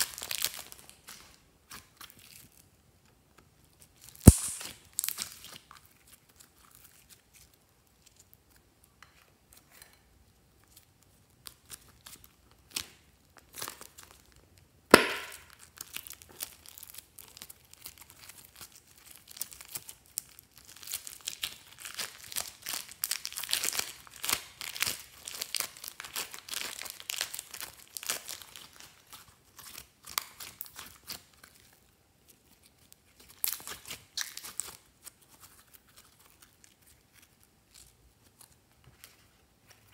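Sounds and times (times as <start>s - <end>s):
slime crackling and popping: 0.0s - 2.6s, 4.2s - 7.5s, 14.9s - 31.8s, 32.5s - 39.9s
sharp snap: 4.2s - 5.2s, 14.9s - 15.4s.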